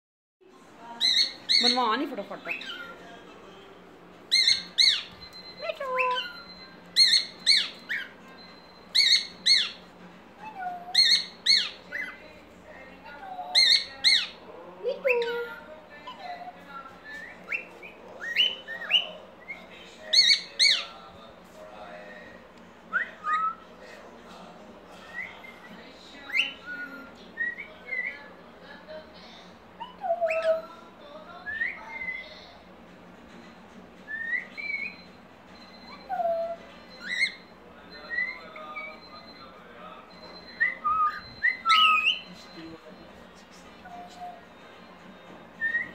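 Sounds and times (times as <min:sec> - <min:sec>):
cockatiel calling: 0:01.0 - 0:03.0, 0:04.3 - 0:12.2, 0:13.3 - 0:14.4, 0:15.1 - 0:20.9, 0:22.9 - 0:23.6, 0:26.3 - 0:28.2, 0:29.8 - 0:30.8, 0:34.1 - 0:39.4, 0:40.1 - 0:42.5, 0:43.8 - 0:44.6, 0:45.6 - 0:45.9.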